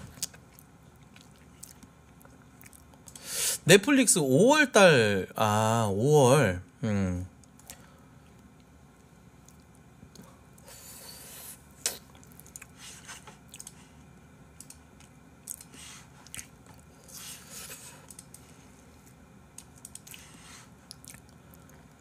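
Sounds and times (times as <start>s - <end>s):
chewing and sucking noises: 0.0s - 3.3s, 9.4s - 14.1s, 14.9s - 22.0s.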